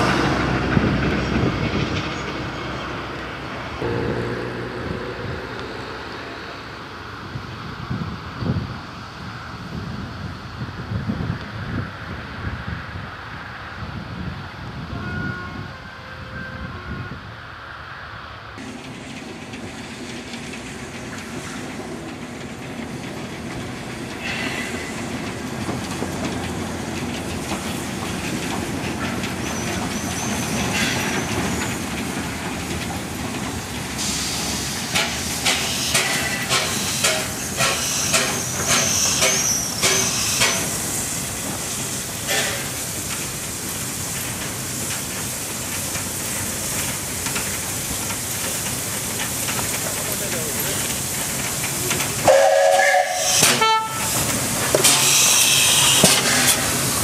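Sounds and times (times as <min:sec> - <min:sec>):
train running: 0:00.0 - 0:57.0
steam hissing: 0:18.6 - 0:57.0.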